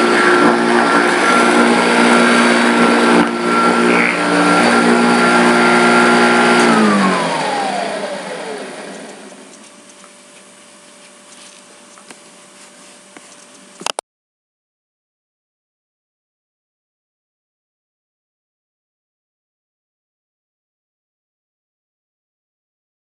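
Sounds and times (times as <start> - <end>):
vacuum cleaner whine: 0.0 - 13.9.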